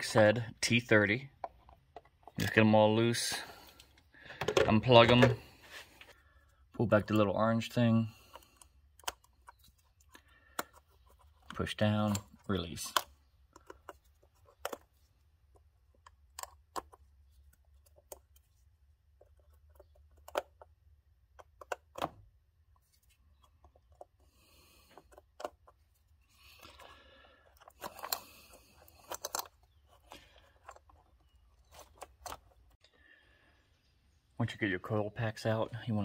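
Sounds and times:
rustling and scraping: 3.2s - 6.2s, 22.7s - 32.8s.

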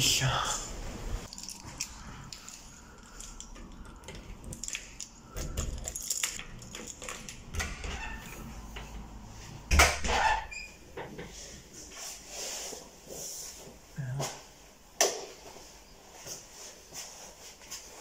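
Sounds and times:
keys jangling on keyring: 1.3s - 7.5s.

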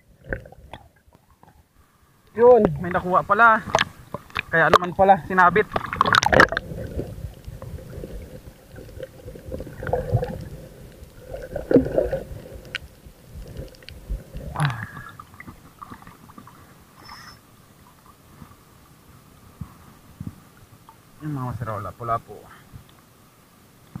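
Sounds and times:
muffled underwater rumbling and gurgling: 2.4s - 17.4s
water sloshing: 2.6s - 17.1s.

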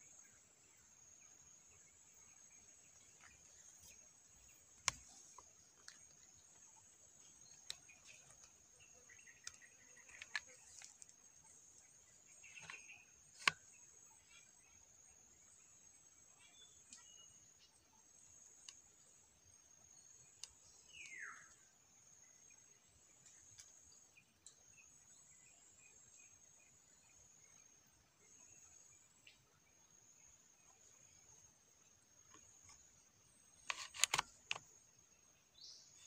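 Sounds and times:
small clicks: 2.8s - 14.4s, 32.2s - 34.8s.

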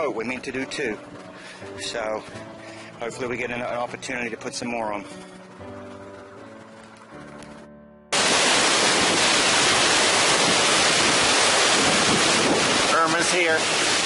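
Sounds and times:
quiet background music: 0.0s - 7.8s
hurricane wind tearing through trees: 8.2s - 14.0s.

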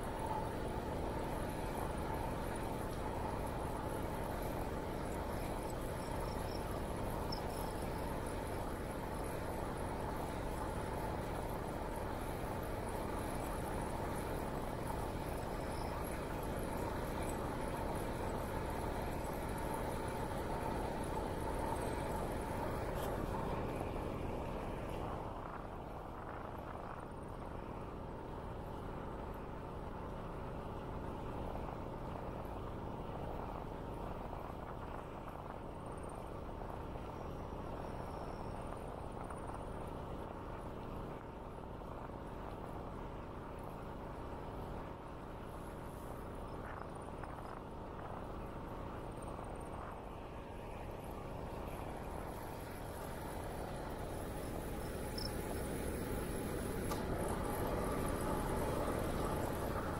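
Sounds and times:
faint insect chirping: 0.0s - 25.2s, 34.2s - 40.8s, 44.6s - 59.9s
bicycle rolling noise: 0.0s - 59.9s
wind noise on microphone: 0.0s - 59.9s.

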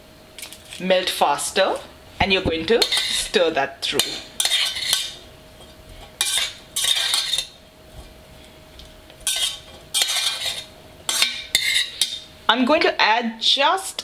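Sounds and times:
metal spoon scraping a saucepan: 2.8s - 7.6s, 9.2s - 12.2s.

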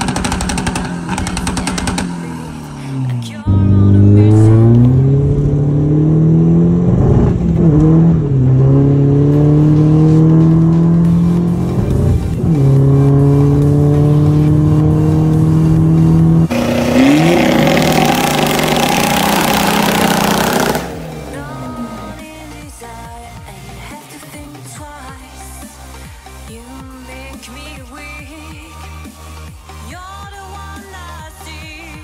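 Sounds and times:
diesel car engine accelerating: 0.0s - 23.9s.

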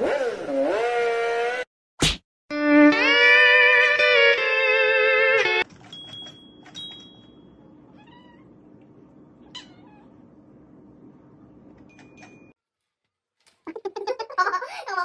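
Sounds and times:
cat meowing: 7.9s - 8.5s, 9.4s - 10.2s.

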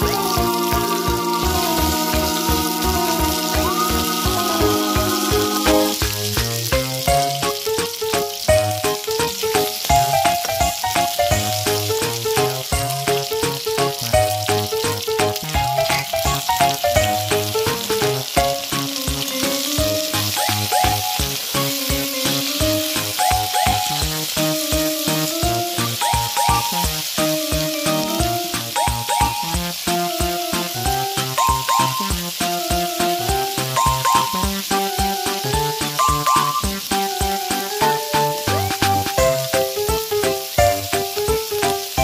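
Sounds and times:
background music with steady beat: 0.0s - 42.0s
food sizzling in oil: 0.0s - 42.0s.

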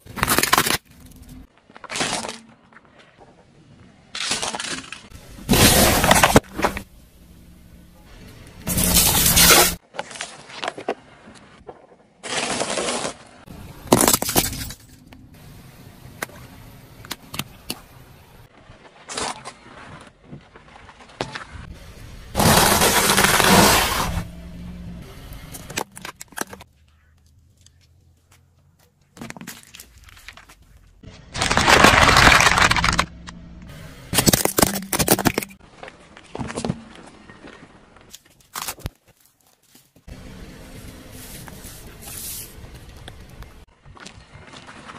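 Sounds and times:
car tyre crushing objects: 0.0s - 3.2s, 4.1s - 6.9s, 8.5s - 15.1s, 18.5s - 24.4s, 29.1s - 40.2s.

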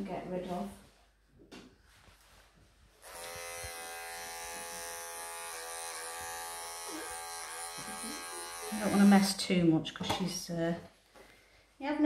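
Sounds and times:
electric pet trimmer buzzing: 3.0s - 9.4s.

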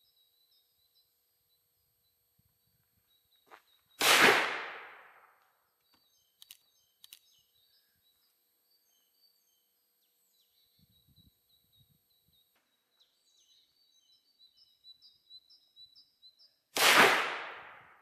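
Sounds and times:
revolver gunshot: 4.0s - 5.2s, 16.8s - 17.9s
faint clicks: 5.8s - 7.3s.

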